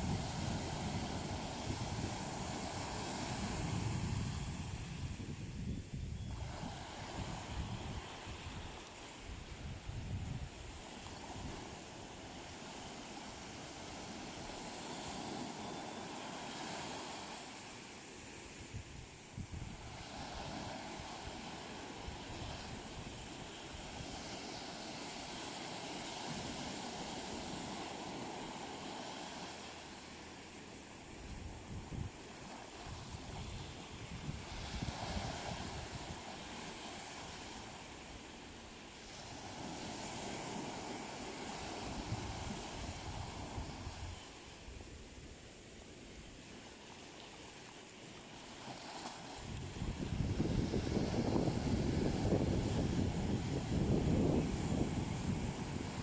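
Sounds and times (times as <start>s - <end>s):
wind buffeting microphone: 0.0s - 11.9s, 18.6s - 24.4s, 32.8s - 36.5s, 49.4s - 56.0s
small waves washing up beach: 0.0s - 56.0s.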